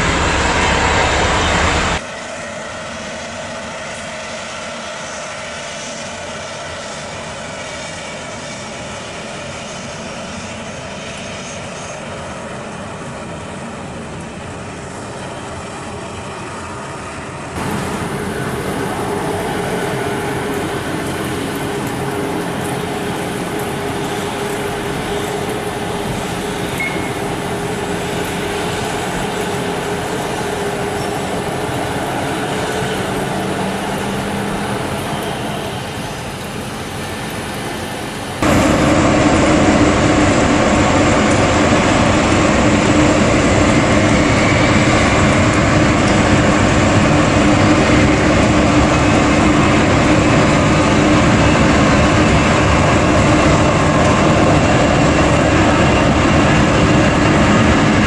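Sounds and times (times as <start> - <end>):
jet engines humming while taxiing: 0.0 - 58.0
loud jet roar on landing: 0.0 - 58.0.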